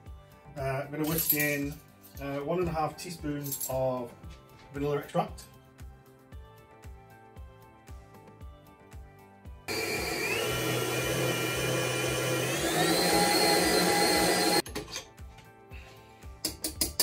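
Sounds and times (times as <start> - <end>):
background music with steady beat: 0.0 - 17.0
stand mixer motor whine: 9.7 - 14.6.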